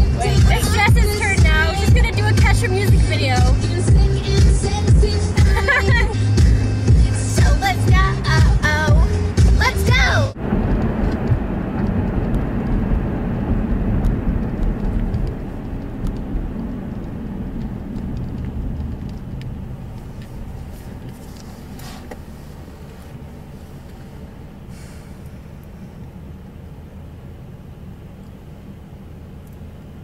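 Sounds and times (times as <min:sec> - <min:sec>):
car road and engine rumble: 0:00.0 - 0:30.0.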